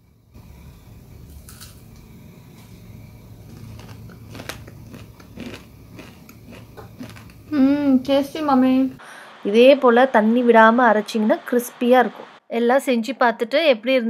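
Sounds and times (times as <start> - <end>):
crunchy food chewing: 3.3 - 7.6.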